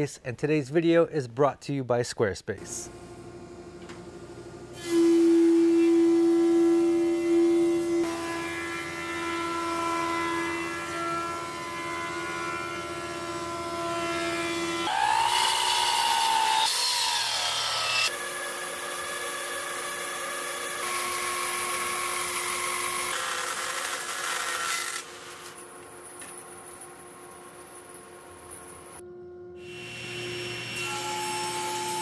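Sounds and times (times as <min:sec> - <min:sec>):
bandsaw cutting wood: 0:04.8 - 0:25.5
miter saw cutting: 0:14.6 - 0:25.4.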